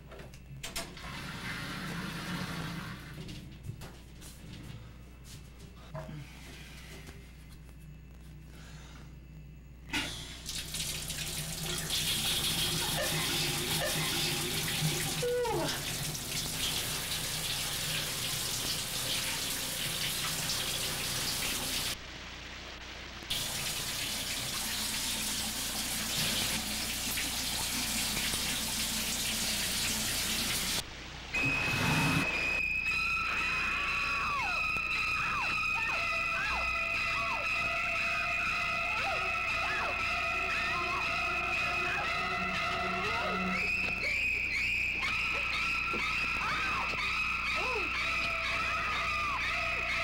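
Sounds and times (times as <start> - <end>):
shower water spraying: 1.0 - 3.2, 10.4 - 22.0, 23.3 - 30.8
steady high tone: 31.4 - 50.0.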